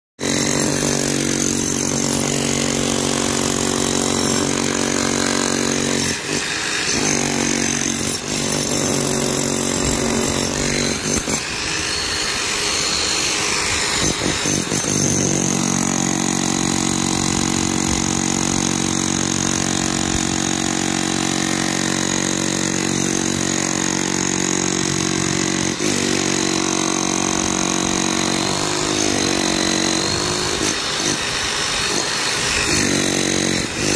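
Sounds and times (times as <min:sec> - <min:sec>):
demolition hammer breaking concrete: 0:00.2 - 0:33.9
saw cutting concrete: 0:00.2 - 0:33.9.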